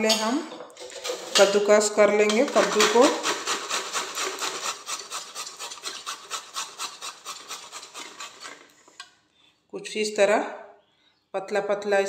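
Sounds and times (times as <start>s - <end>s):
gourd grated on metal grater: 0.8s - 9.0s.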